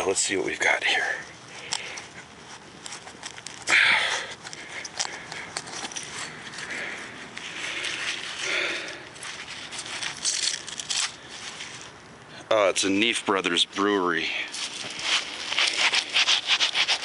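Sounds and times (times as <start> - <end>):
hand scraping packed dirt: 0.0 - 12.0, 13.4 - 17.0.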